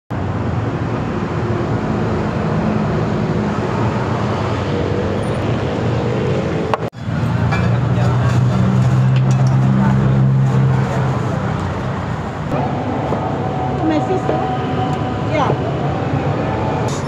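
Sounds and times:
road traffic rumble: 0:00.1 - 0:17.0.

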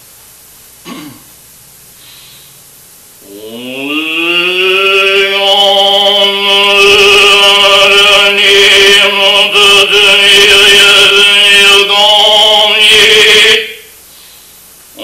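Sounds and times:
man chanting long tone: 0:03.2 - 0:14.0.

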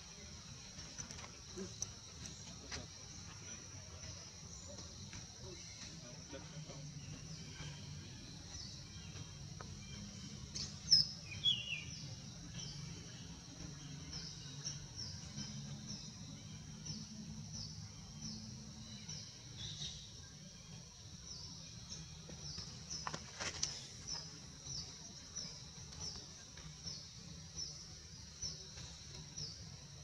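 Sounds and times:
birds chirping: 0:00.0 - 0:30.0
high insect drone: 0:00.0 - 0:30.0.

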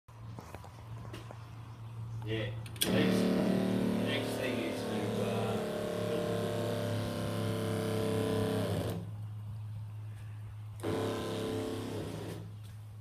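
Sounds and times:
spray pump buzzing hum: 0:02.8 - 0:09.1, 0:10.8 - 0:12.7.

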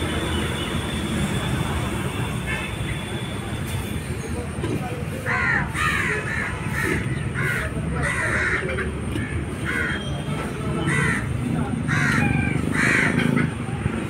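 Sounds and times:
crows cawing: 0:05.3 - 0:10.1, 0:10.8 - 0:13.6.

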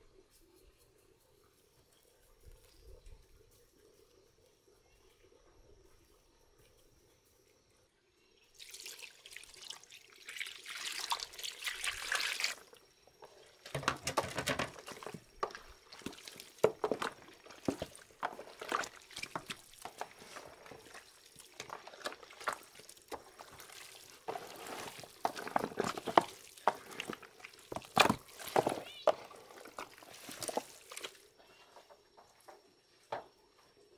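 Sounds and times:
wet squelches of raw meat: 0:15.5 - 0:31.3.

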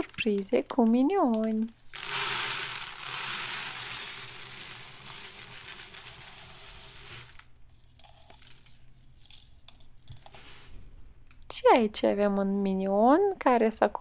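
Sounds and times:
dry rice pouring into plastic tub: 0:01.9 - 0:07.5.

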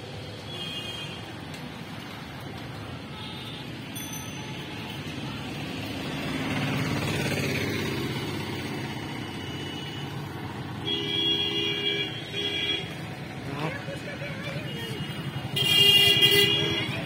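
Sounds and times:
engine passing by: 0:05.4 - 0:09.3.

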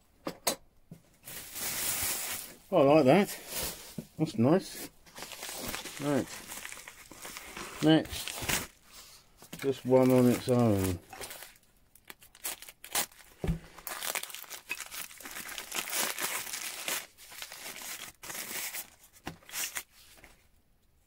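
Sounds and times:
paper tearing and crumpling: 0:05.2 - 0:08.8, 0:09.6 - 0:20.0.

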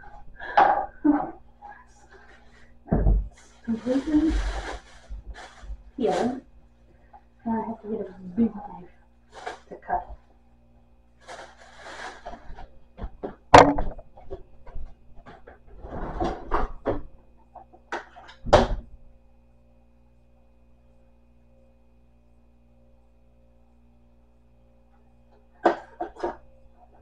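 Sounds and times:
faint steady hum: 0:00.0 - 0:27.0
plastic bag rustling: 0:03.3 - 0:06.4, 0:09.3 - 0:09.8, 0:11.2 - 0:12.7
loud thuds: 0:13.5 - 0:14.2.

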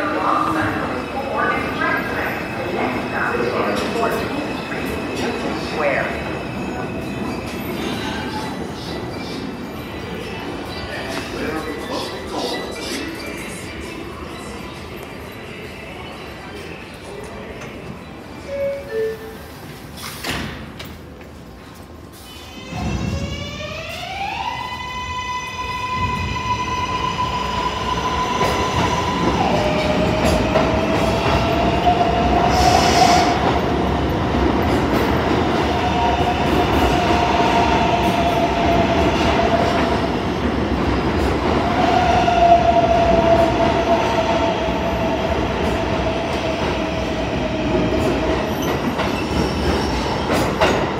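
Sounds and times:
train wheels rumbling on rails: 0:25.7 - 0:50.9.

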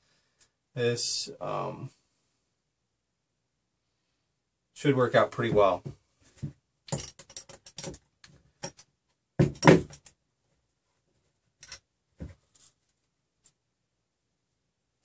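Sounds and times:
clicks and knocks of parts and tools: 0:06.9 - 0:10.2, 0:11.6 - 0:13.6.

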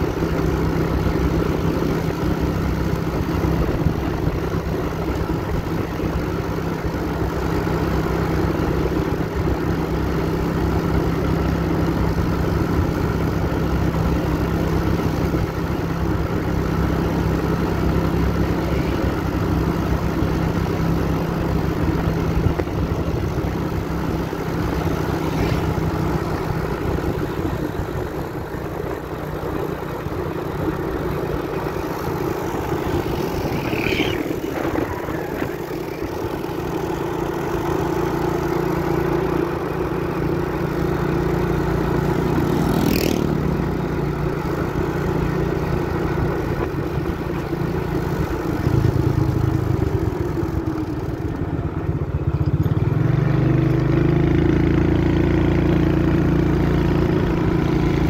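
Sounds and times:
vehicle engine running: 0:00.0 - 0:58.0
steady rushing noise: 0:21.5 - 0:50.4.

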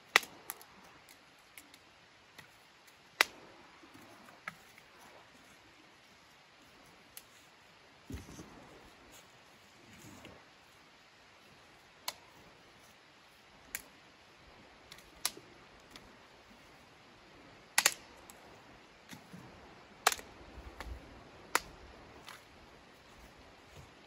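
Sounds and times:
dry sticks snapping: 0:00.0 - 0:01.8, 0:02.4 - 0:04.6, 0:12.0 - 0:12.3, 0:14.9 - 0:16.1, 0:17.8 - 0:18.1, 0:20.0 - 0:22.5.

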